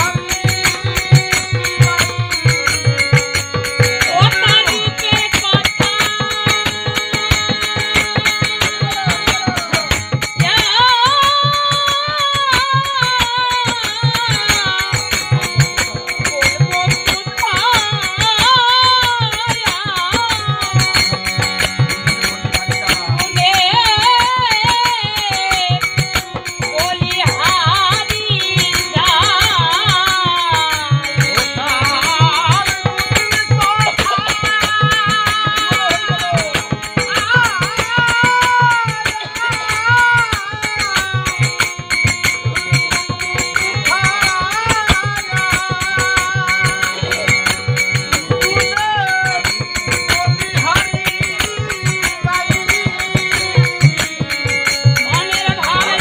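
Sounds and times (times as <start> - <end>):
hand percussion: 0.0 - 56.0
steady drum beat: 0.0 - 56.0
wavering melody line: 39.2 - 56.0.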